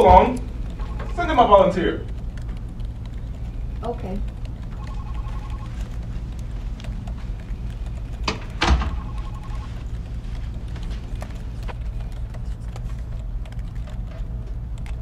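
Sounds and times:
steady low hum: 0.0s - 15.0s
sharp knocks: 8.3s - 9.1s
brief ringing tone: 9.0s - 9.7s.

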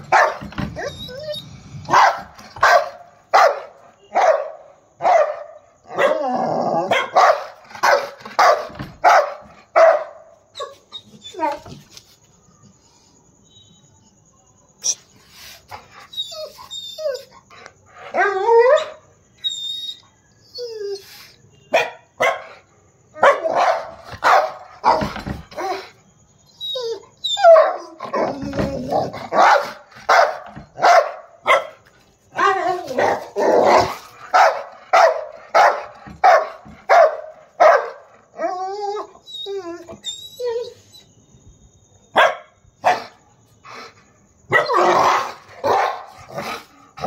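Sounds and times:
dog barking aggressively: 0.0s - 0.7s, 1.8s - 10.3s, 21.7s - 22.6s, 23.2s - 25.4s, 27.4s - 31.8s, 32.4s - 38.1s, 42.2s - 43.2s, 44.5s - 47.0s.

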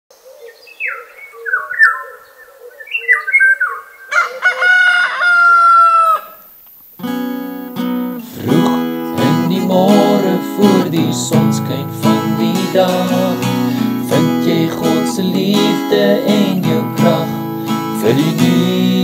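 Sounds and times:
birds calling: 0.2s - 7.0s
rooster crowing: 4.1s - 6.5s
acoustic guitar music: 7.0s - 19.0s.

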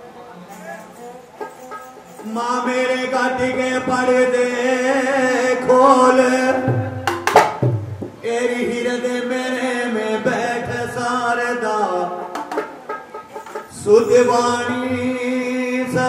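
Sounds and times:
hand drum strokes: 0.5s - 2.7s, 6.6s - 8.2s, 12.1s - 16.0s
man singing: 0.5s - 7.4s, 8.2s - 12.4s, 13.7s - 16.0s.

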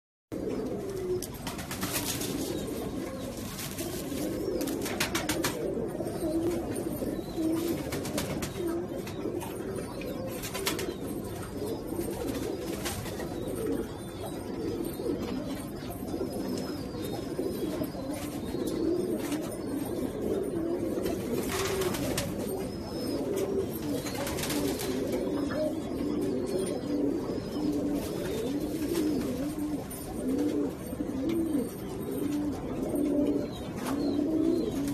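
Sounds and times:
pigeons cooing: 0.4s - 34.9s
rustling: 1.1s - 5.2s.

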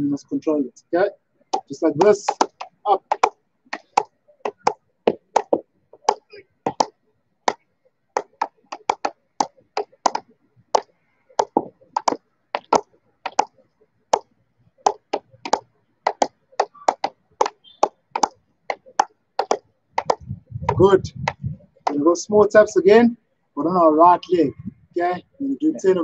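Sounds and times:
hockey ball clacking on stick: 1.6s - 7.6s, 8.2s - 14.3s, 14.9s - 22.0s.

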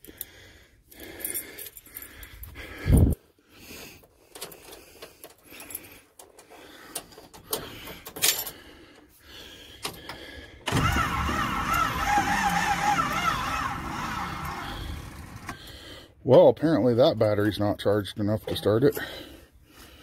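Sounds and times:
keys clicking and rattling: 1.0s - 3.2s, 4.2s - 8.6s
engine starter cranking slowly: 9.9s - 15.8s.

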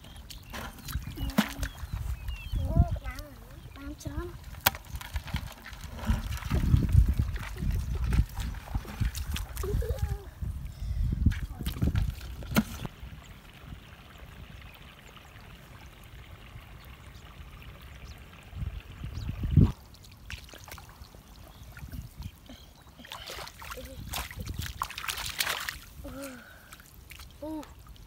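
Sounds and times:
shallow water trickling and sloshing: 0.0s - 28.0s
low rumble on microphone: 0.5s - 4.4s, 5.4s - 19.8s.

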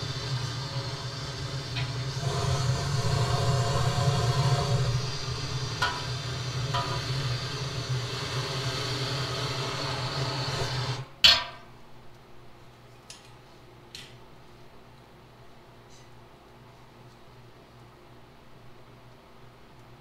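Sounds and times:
blowtorch flame hissing: 0.0s - 11.1s.

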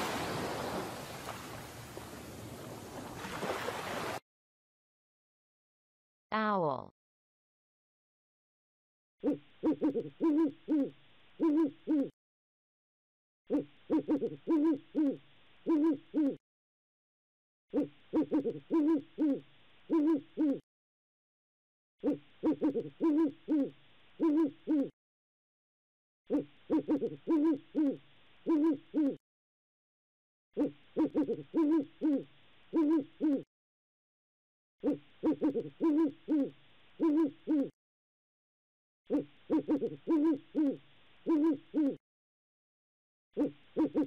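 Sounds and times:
owl hooting: 9.2s - 12.2s, 13.5s - 16.4s, 17.7s - 20.6s, 22.0s - 25.0s, 26.3s - 29.2s, 30.6s - 33.5s, 34.8s - 37.8s, 39.1s - 42.0s, 43.4s - 44.0s.

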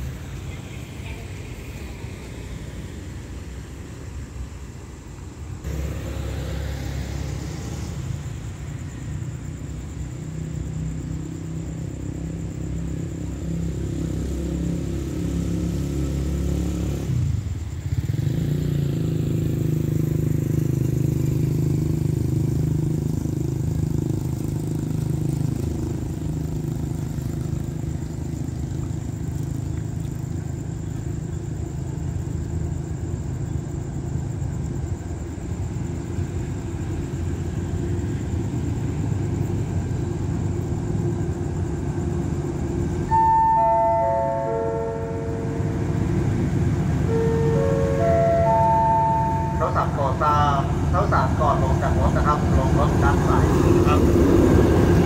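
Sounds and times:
diesel locomotive engine drone: 0.0s - 55.0s.

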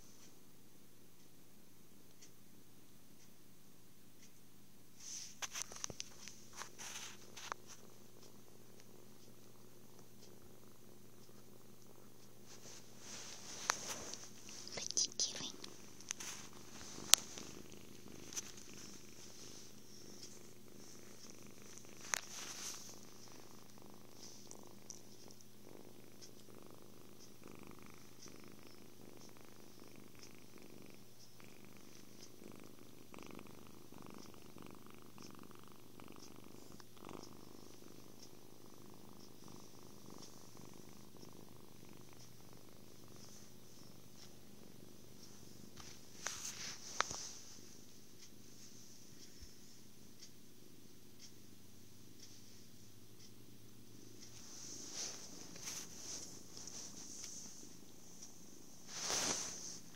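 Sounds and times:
kitten purring: 4.2s - 59.9s.

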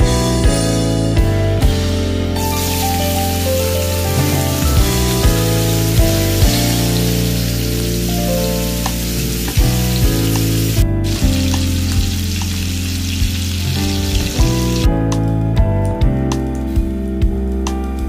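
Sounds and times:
background music: 0.0s - 18.0s
vegetables sizzling in oil: 2.4s - 14.8s.

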